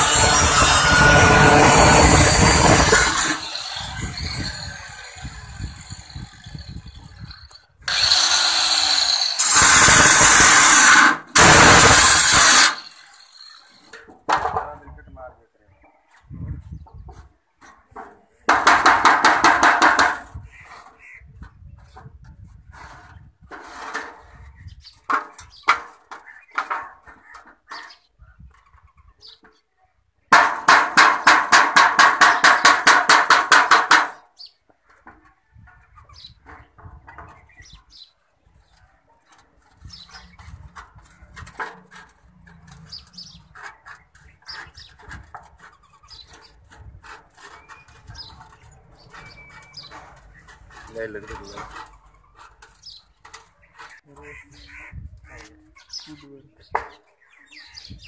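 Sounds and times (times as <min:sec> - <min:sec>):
angle grinder cutting sheet metal: 0:00.0 - 0:13.8.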